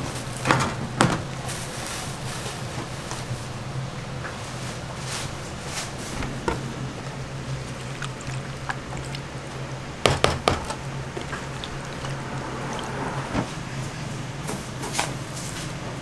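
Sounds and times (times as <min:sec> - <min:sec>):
batter squishing and sloshing: 0:00.1 - 0:14.0
low hum: 0:04.0 - 0:10.0, 0:10.7 - 0:14.4.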